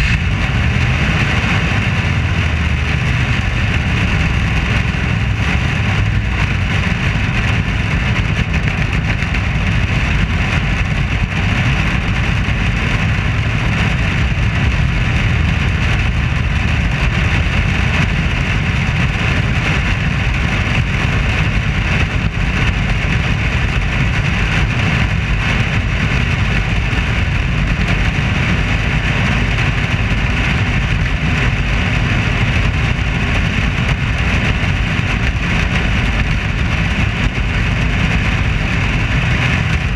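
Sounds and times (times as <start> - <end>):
race car engine and wind: 0.0 - 39.9.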